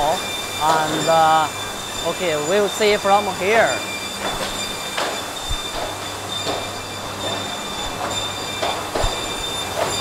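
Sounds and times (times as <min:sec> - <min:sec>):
high-pitched machine whines: 0:00.0 - 0:10.0
irregular knocks and clatters: 0:04.2 - 0:10.0.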